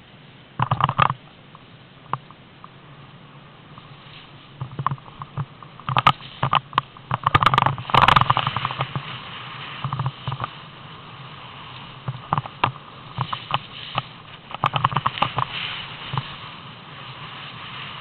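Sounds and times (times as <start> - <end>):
snowboard scraping over snow: 3.8 - 18.0.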